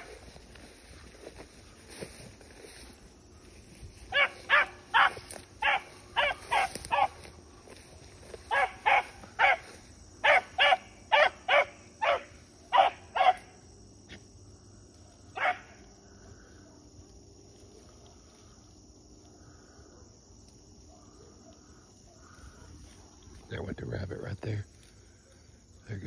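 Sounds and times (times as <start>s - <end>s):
hound barking: 4.1s - 7.2s, 8.4s - 13.6s, 15.3s - 15.9s.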